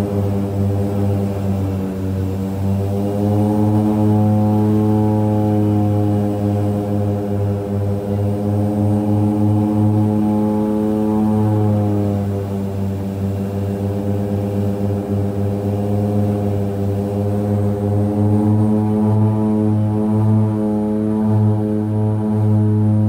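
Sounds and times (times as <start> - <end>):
turboprop engines droning: 0.0 - 23.0.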